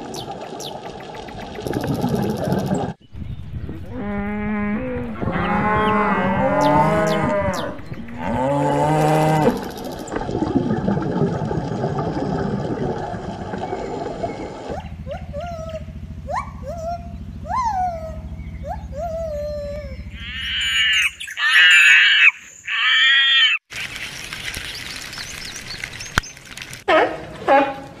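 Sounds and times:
noisy outdoor background: 0:00.0 - 0:28.0
cattle mooing: 0:03.9 - 0:09.7.

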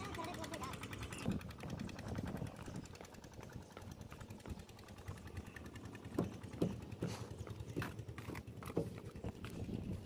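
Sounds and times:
sharp irregular knocks: 0:06.0 - 0:09.2.

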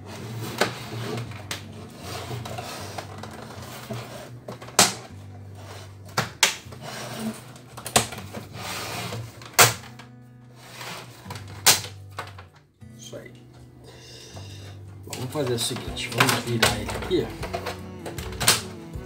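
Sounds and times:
plastic latches snapping: 0:04.5 - 0:05.1, 0:06.1 - 0:06.8, 0:07.5 - 0:08.5, 0:09.1 - 0:10.1, 0:11.3 - 0:12.6, 0:15.1 - 0:18.8.

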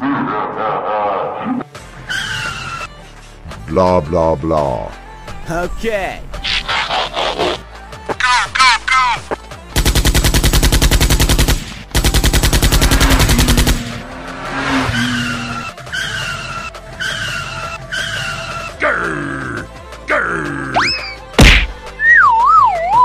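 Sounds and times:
car tyres skidding: 0:02.0 - 0:02.9, 0:13.0 - 0:18.8
short tyre squeals: 0:02.0 - 0:03.0, 0:14.7 - 0:18.7
machine-gun fire: 0:09.8 - 0:14.0.

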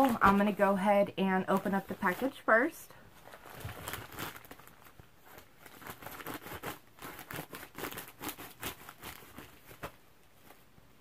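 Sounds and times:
envelope crinkling: 0:01.5 - 0:02.5, 0:03.1 - 0:10.7.

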